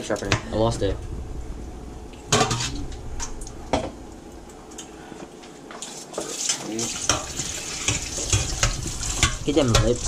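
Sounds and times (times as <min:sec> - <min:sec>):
tap water running: 0:05.7 - 0:10.0.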